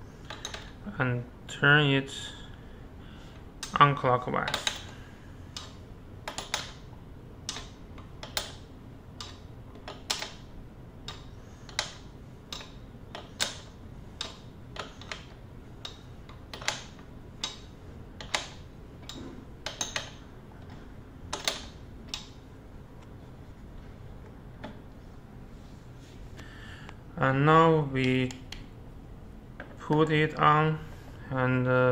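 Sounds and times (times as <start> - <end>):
wrench clicking on pedal: 9.2 - 10.4, 11.1 - 20.2.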